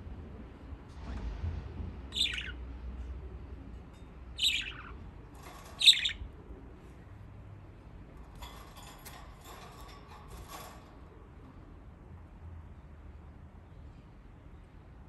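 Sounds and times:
budgerigar squawks: 2.2s - 2.6s.

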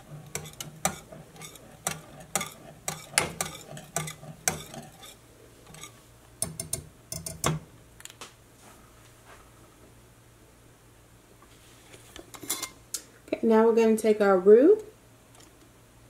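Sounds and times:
whisk clicking against saucepan: 0.0s - 7.6s.

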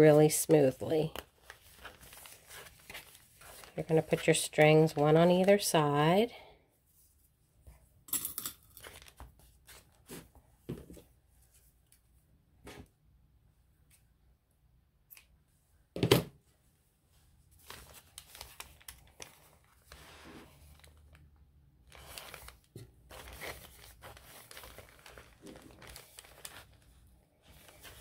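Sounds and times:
paper pages rustling: 1.0s - 5.6s, 8.8s - 11.7s, 17.5s - 21.3s, 21.9s - 28.0s
thread pulled through paper: 17.6s - 28.0s.

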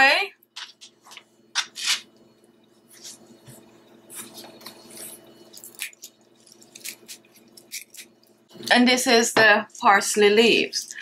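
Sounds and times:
parsley leaves rustling: 4.1s - 8.2s.

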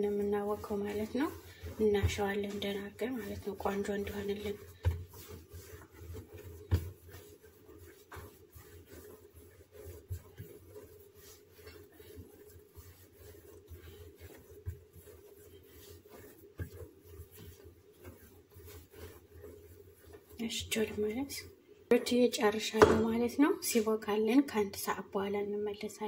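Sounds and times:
hands kneading dough: 0.0s - 26.0s
dough thumping on countertop: 4.6s - 7.2s, 22.7s - 23.3s.

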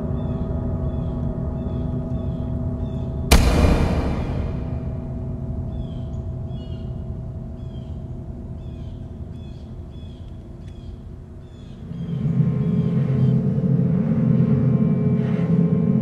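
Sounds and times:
low steady drone: 3.3s - 9.2s, 11.8s - 16.0s.

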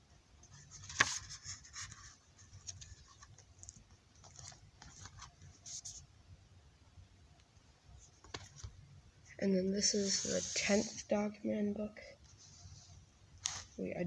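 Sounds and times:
pages rustling: 0.6s - 6.0s, 13.4s - 13.8s.

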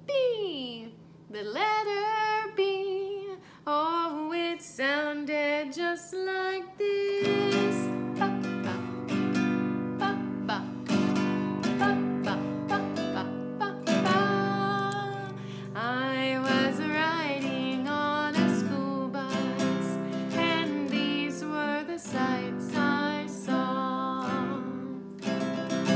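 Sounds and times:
woman singing: 0.0s - 25.9s
acoustic guitar strumming: 7.2s - 25.9s.

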